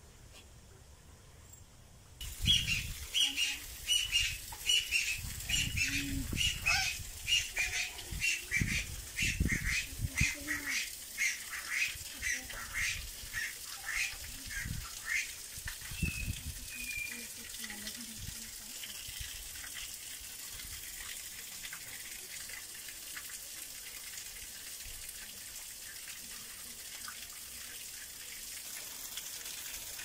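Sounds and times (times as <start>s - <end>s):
parrots squawking: 2.5s - 15.3s.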